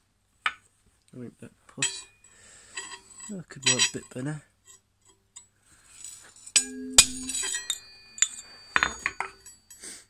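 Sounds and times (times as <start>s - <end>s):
metallic ring: 1.8s - 5.2s, 5.9s - 10.0s
hammer striking steel: 6.6s - 9.6s.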